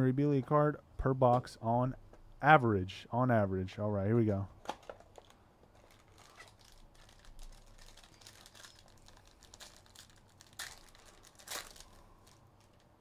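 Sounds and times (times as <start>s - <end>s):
foil wrapper crinkling: 4.6s - 13.0s.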